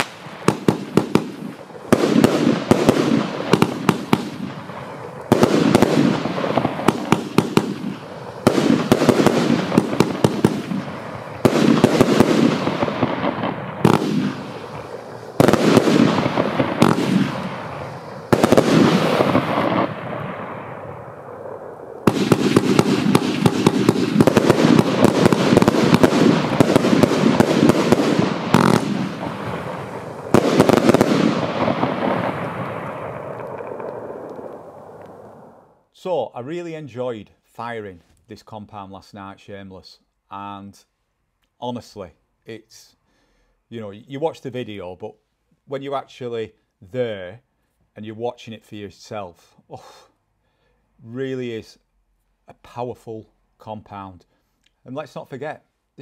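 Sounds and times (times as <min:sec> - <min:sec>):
firework bursts with crackling: 0:00.0 - 0:35.7.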